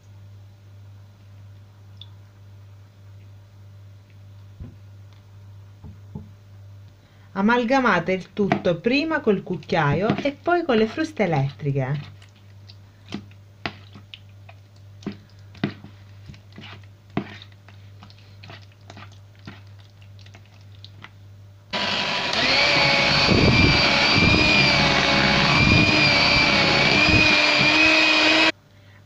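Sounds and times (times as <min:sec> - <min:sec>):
electric hand mixer whining: 0:21.7 - 0:28.5.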